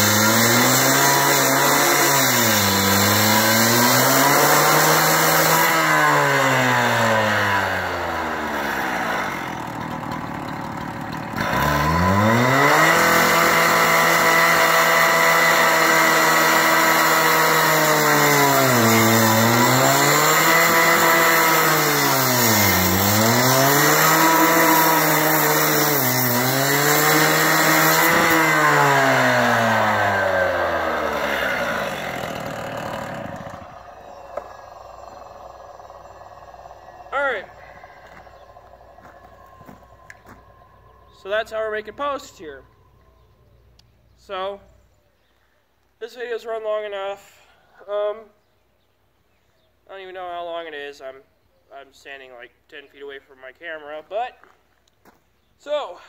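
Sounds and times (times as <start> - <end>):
cut-off saw engine revving: 0.0 - 42.7
saw blade cutting steel pipe: 11.4 - 40.5.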